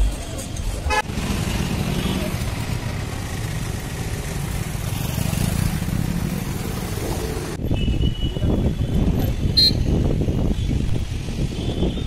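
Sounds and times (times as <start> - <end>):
street traffic rumble: 0.0 - 12.0
motorcycles passing: 0.7 - 7.6.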